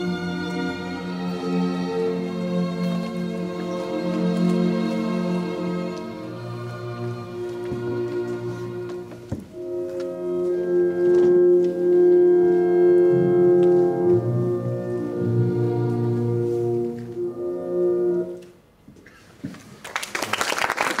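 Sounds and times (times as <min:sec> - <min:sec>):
slow music of held chords: 0:03.8 - 0:18.5
audience applause: 0:19.8 - 0:21.0.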